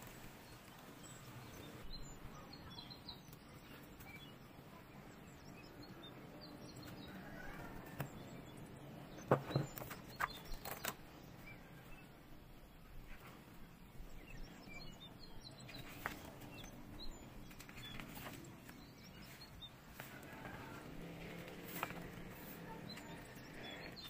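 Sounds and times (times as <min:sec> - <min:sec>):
faint bird chirps: 0:00.0 - 0:24.0
book pages rustling: 0:15.7 - 0:24.0.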